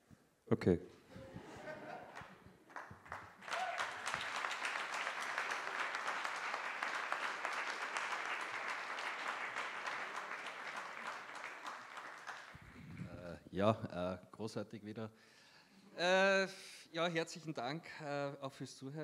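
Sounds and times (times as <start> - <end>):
audience applauding: 1.6 - 13.2.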